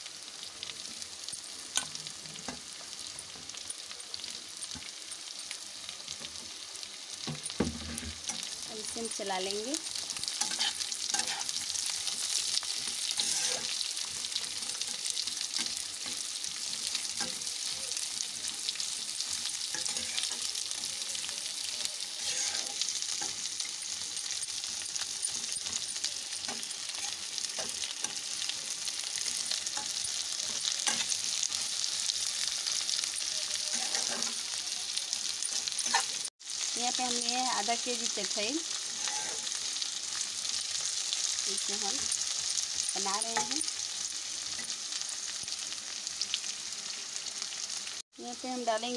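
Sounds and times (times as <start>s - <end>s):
vegetables sizzling in oil: 0.0s - 48.9s
spatula scraping a pan: 9.9s - 34.6s, 35.2s - 36.3s, 38.7s - 39.8s.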